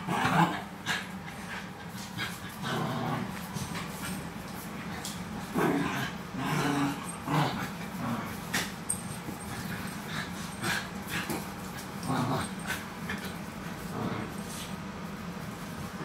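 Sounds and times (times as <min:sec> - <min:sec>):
small dogs play-fighting vocalizing: 0:04.9 - 0:14.7.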